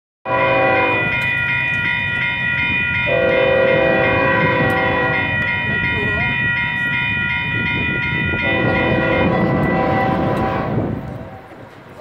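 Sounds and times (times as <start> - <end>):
locomotive horn: 0.2 - 1.2, 3.1 - 5.5, 8.4 - 11.6
railroad crossing warning bell: 0.2 - 12.0.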